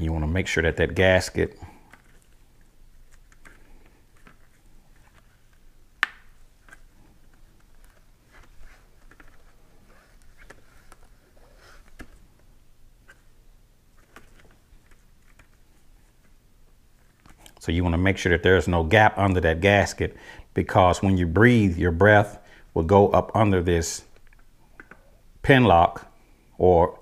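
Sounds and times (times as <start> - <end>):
plastic handling clicks and rustles: 1.8 - 11.2, 13.9 - 16.4, 24.1 - 25.1.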